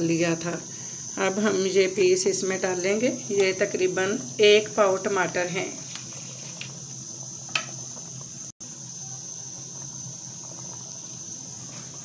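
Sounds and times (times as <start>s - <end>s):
curry bubbling in a pot: 3.5s - 12.0s.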